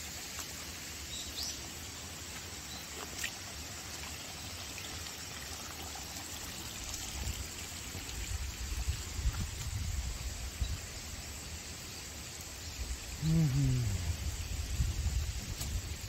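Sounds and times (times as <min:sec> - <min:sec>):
water trickling in a ditch: 0:00.0 - 0:16.0
wind gusts on microphone: 0:13.2 - 0:16.0.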